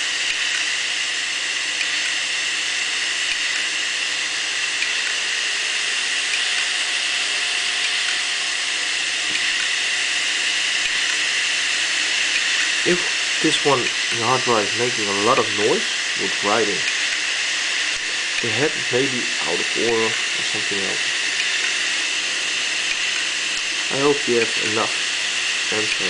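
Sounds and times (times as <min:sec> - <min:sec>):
hard drive platter whirring: 0:00.0 - 0:26.0
hard drive head ticks: 0:00.2 - 0:00.7, 0:01.8 - 0:02.2, 0:03.2 - 0:03.7, 0:04.6 - 0:05.2, 0:09.2 - 0:09.9, 0:10.8 - 0:15.7, 0:16.4 - 0:21.9.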